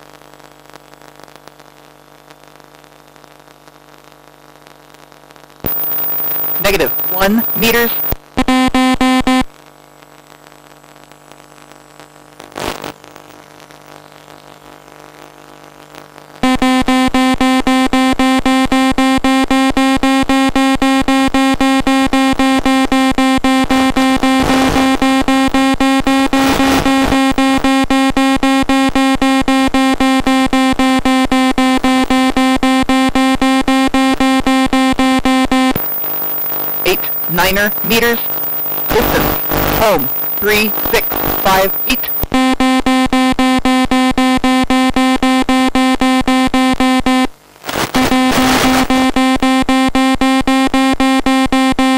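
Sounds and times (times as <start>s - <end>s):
faint hum: 5.6s - 8.5s, 34.9s - 45.8s
rapid pulsed electronic beep: 5.7s - 8.2s, 35.6s - 42.3s.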